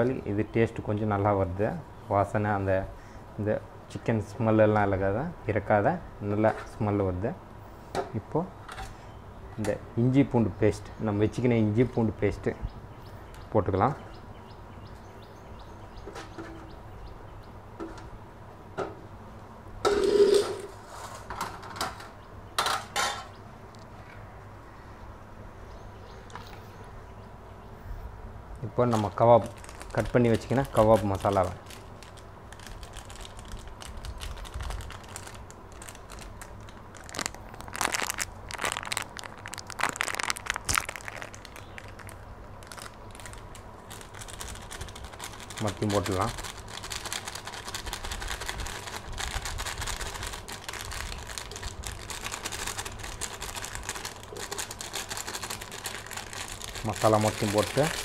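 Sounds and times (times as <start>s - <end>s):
steel dishes scraping rattle: 19.9s - 21.2s
plastic sachet crinkling: 28.8s - 58.0s.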